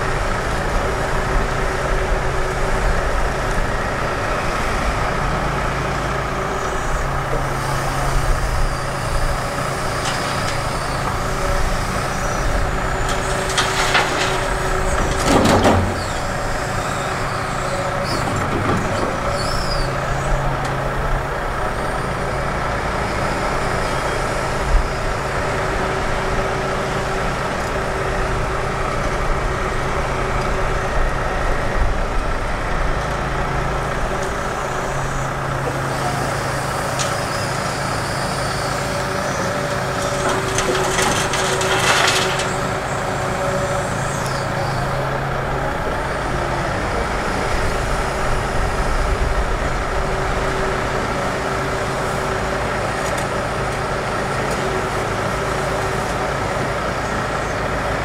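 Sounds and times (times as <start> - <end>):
excavator diesel engine running: 0.0 - 58.0
soil and gravel pouring: 39.7 - 43.1.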